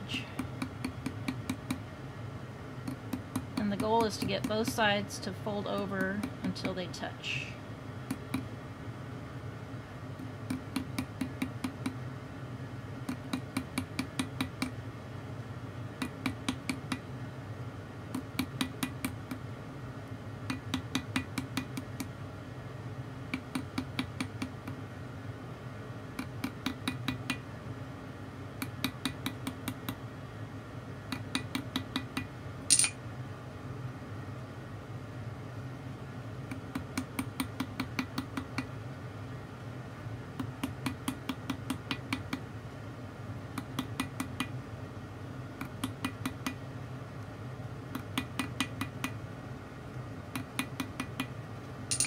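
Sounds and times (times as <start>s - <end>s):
small hammer tapping metal: 0.4s - 1.8s, 2.8s - 4.9s, 20.5s - 22.1s, 31.1s - 33.0s
metallic clank: 32.7s - 33.0s.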